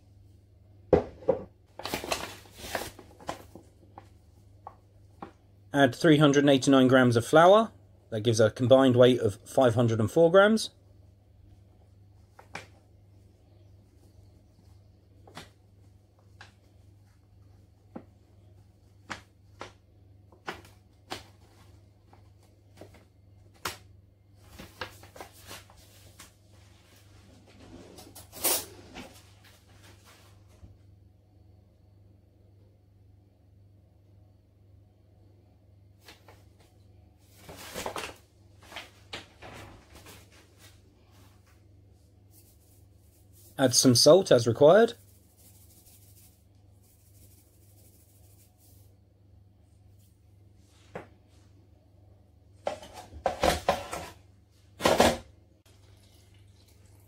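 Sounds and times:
items knocking on worktop: 0:00.9 - 0:01.5, 0:52.6 - 0:54.2
flour clicks and rustles: 0:01.6 - 0:05.5, 0:11.8 - 0:27.6, 0:36.0 - 0:51.5
flour bag rustling: 0:01.7 - 0:04.2, 0:37.2 - 0:43.9, 0:45.0 - 0:48.9.

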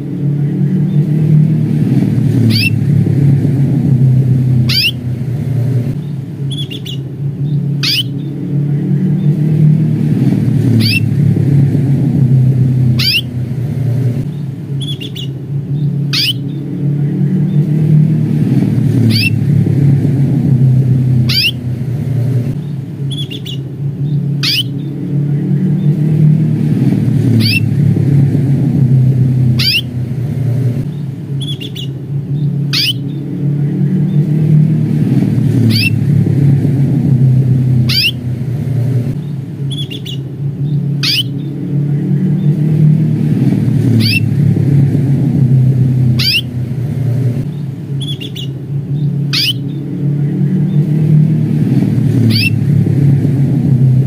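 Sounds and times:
steady low rumble: 0:00.0 - 0:54.0
canary chirping: 0:02.4 - 0:02.8, 0:04.6 - 0:05.1, 0:06.0 - 0:08.4, 0:10.6 - 0:11.2, 0:12.8 - 0:13.4, 0:14.3 - 0:16.7, 0:18.9 - 0:19.4, 0:21.2 - 0:21.7, 0:22.6 - 0:25.0, 0:27.2 - 0:27.7, 0:29.5 - 0:30.0, 0:30.8 - 0:33.3, 0:35.6 - 0:36.0, 0:37.8 - 0:38.3, 0:39.2 - 0:41.6, 0:43.8 - 0:44.4, 0:46.1 - 0:46.6, 0:47.4 - 0:49.9, 0:52.2 - 0:52.6.

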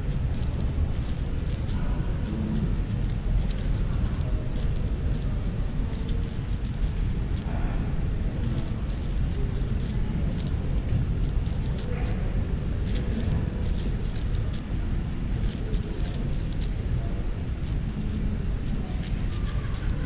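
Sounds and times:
low background rumble: 0:00.0 - 0:20.0
puzzle cube clicking: 0:00.1 - 0:05.3, 0:05.9 - 0:07.5, 0:08.4 - 0:10.6, 0:11.2 - 0:11.9, 0:12.8 - 0:14.7, 0:15.4 - 0:16.7, 0:17.6 - 0:20.0.

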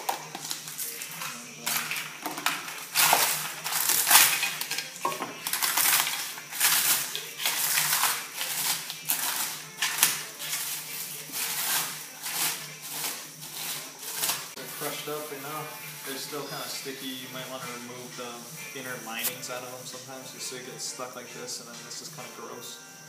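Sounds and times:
eggshells crunching in a pan: 0:00.0 - 0:14.6.

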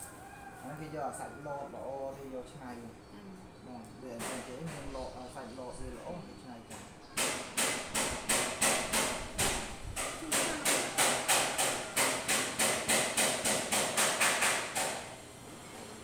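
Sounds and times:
sharp knocks: 0:04.2 - 0:05.0, 0:06.7 - 0:15.1.

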